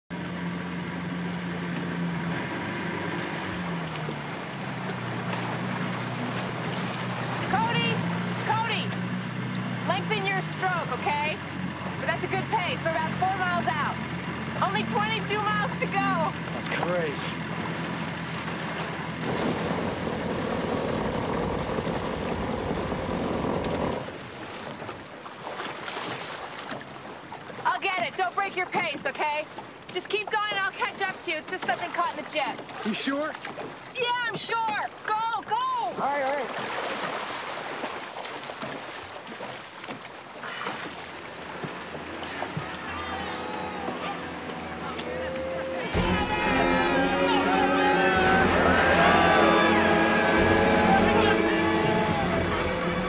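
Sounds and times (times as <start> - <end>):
boat engine droning: 0.1 - 53.0
water wash: 0.1 - 53.0.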